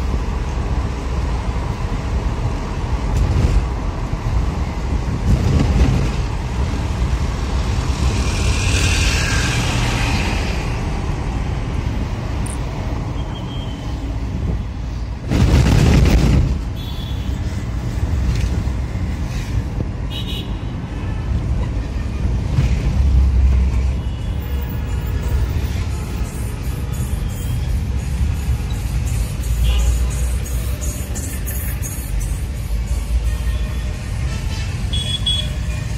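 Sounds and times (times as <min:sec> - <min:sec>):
car road noise rumble: 0:00.0 - 0:35.9
surrounding traffic: 0:00.0 - 0:35.9
loud rushing noise: 0:02.0 - 0:16.8.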